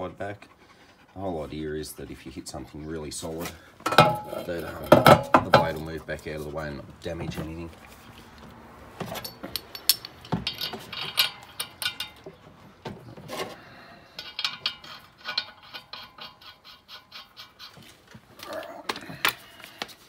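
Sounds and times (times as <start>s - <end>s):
metal nut clicking on stud: 9.2s - 12.3s, 14.2s - 17.7s.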